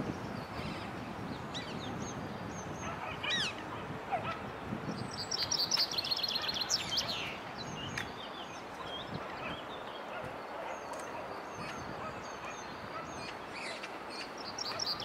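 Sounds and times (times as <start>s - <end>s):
wind noise: 0.0s - 15.0s
chaffinch singing: 4.9s - 15.0s.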